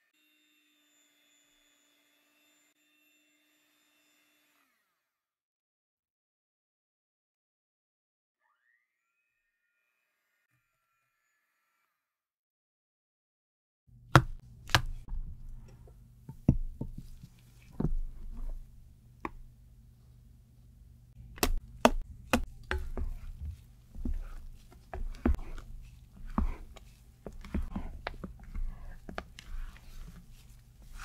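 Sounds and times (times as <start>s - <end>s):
spatula tapping mixing bowl: 16.3s - 18.6s, 21.2s - 31.0s
wet swishes of folding batter: 16.9s - 18.8s, 21.2s - 31.0s.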